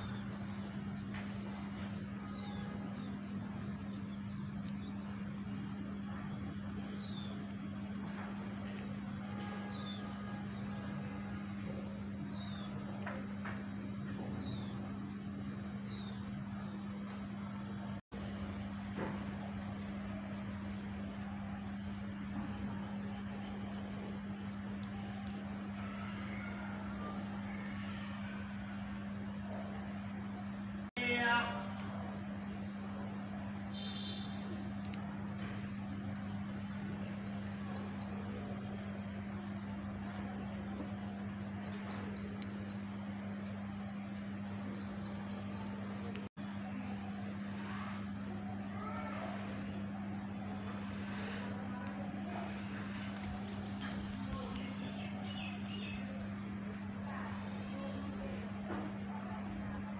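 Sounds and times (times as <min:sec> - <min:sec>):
low mechanical hum: 0:00.0 - 0:59.9
outdoor background noise: 0:00.0 - 0:59.9.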